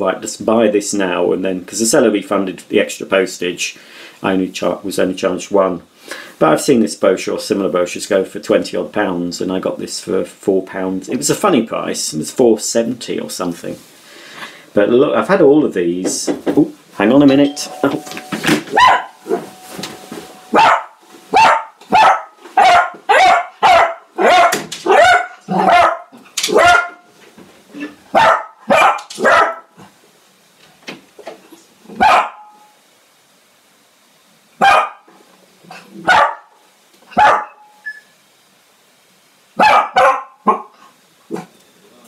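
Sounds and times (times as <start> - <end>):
dog barking: 18.7 - 19.5, 20.5 - 27.1, 28.1 - 29.8, 32.0 - 32.7, 34.6 - 35.1, 35.7 - 37.8, 39.6 - 41.5.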